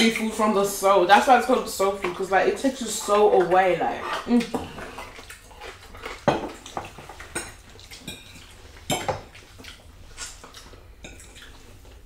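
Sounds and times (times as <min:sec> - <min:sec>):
cutlery clinking on glass dishes: 0:06.2 - 0:09.3.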